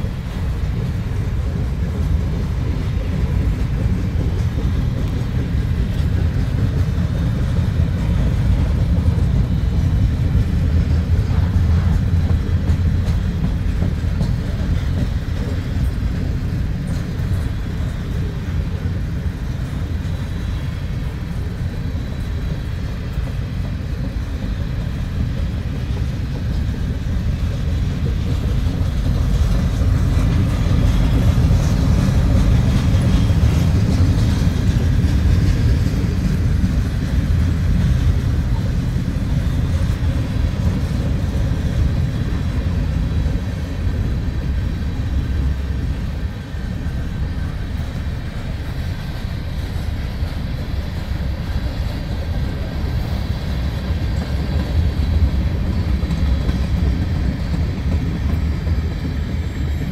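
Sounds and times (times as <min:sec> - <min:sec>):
freight train rumbling past: 0:00.0 - 0:59.9.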